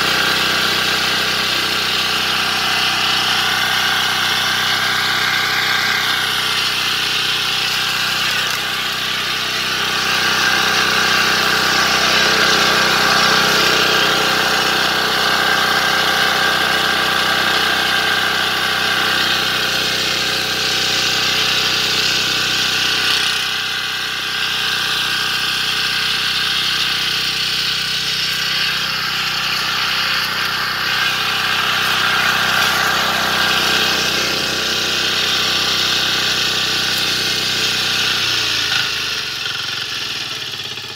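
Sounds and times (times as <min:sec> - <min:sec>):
power tiller engine running: 0:00.0 - 0:40.9
tines churning soil: 0:00.0 - 0:40.9.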